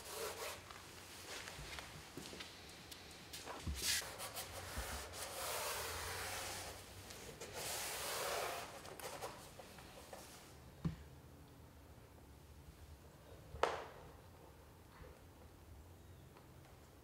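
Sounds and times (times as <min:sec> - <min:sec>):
hands rubbing a painted panel: 0:03.7 - 0:10.5.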